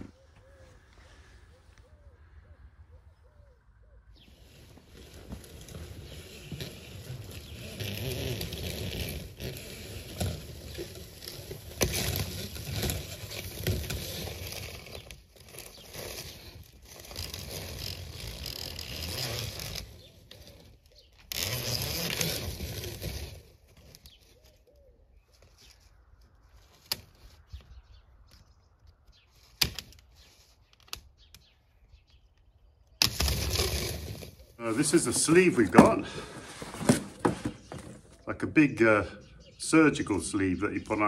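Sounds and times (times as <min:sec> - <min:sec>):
scraping and rattling: 0:33.0 - 0:38.2.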